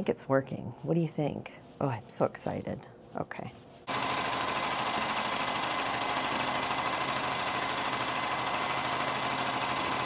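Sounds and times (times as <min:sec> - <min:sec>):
sewing machine stitching fast: 0:03.9 - 0:10.0.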